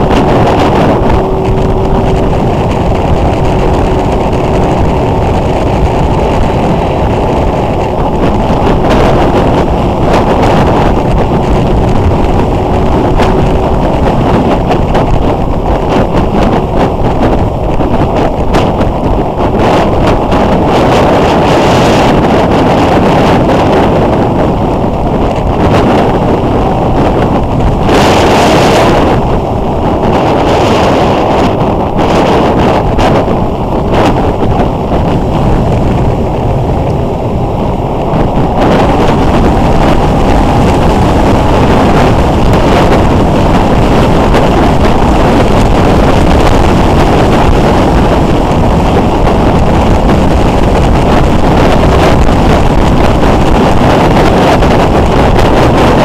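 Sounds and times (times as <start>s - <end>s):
motorcycle engine: 0.0s - 56.0s
wind rushing over microphone: 0.0s - 56.0s.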